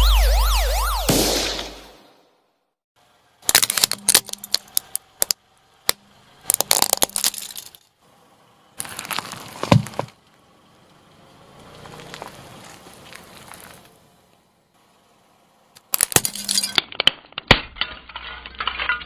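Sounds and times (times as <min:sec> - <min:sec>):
plastic toy cracking under tyre: 0:03.4 - 0:05.4, 0:06.5 - 0:07.7, 0:15.8 - 0:18.7
soft crushing: 0:08.8 - 0:10.3.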